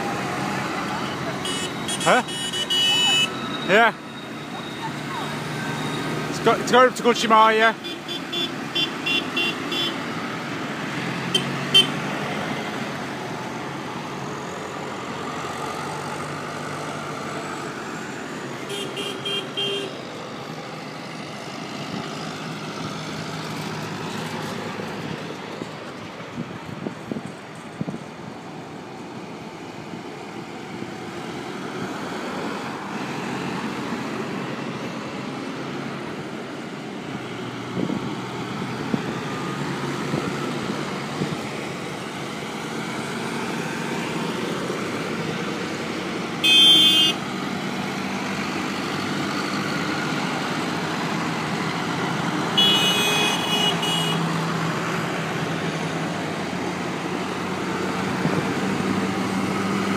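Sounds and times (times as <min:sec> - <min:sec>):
tractor diesel engines passing: 0:00.0 - 0:59.9
horn blasts: 0:01.4 - 0:03.4, 0:46.4 - 0:47.2, 0:52.6 - 0:54.2.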